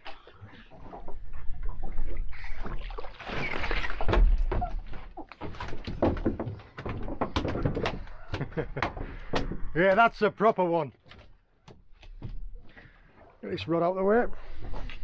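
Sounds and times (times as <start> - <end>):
water splashing: 0.0 - 6.4
fish flapping knocks and rattles: 2.6 - 9.8, 11.0 - 12.9.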